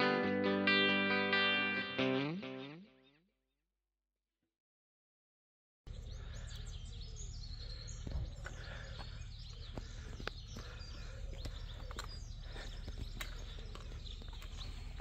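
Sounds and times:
small birds chirping and singing: 5.9s - 15.0s.

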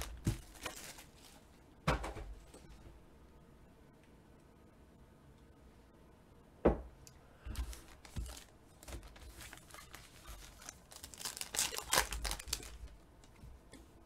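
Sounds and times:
foil wrapper tearing and crinkling: 0.0s - 1.4s, 7.5s - 13.0s.

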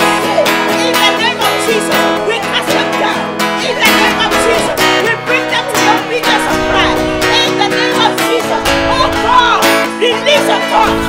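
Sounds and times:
plucked guitar notes: 0.0s - 11.0s
sustained chords: 1.9s - 10.0s.

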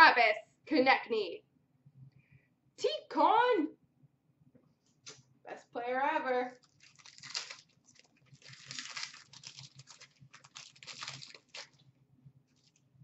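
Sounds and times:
wrapper tearing and crinkling: 6.5s - 11.8s.

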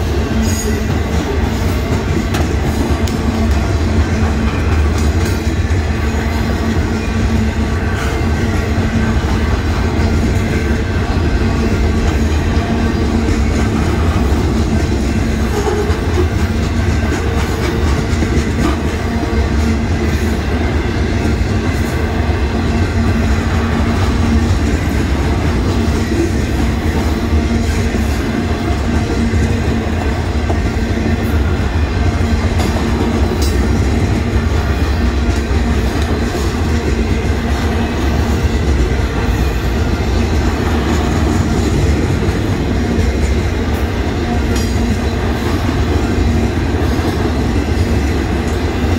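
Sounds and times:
train wheels rumbling on rails: 0.0s - 48.9s.

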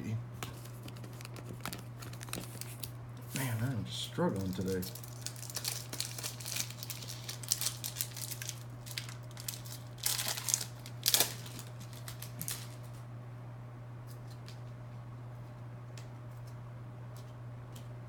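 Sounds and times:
wrapper crinkling and tearing: 0.5s - 3.5s, 4.3s - 13.0s.

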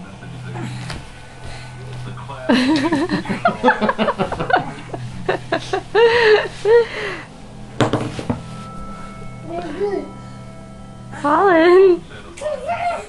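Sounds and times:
person chuckling: 2.4s - 7.3s.

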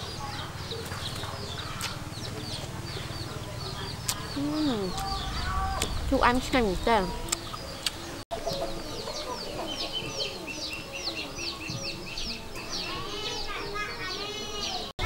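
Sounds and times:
chickens clucking: 7.0s - 14.5s.

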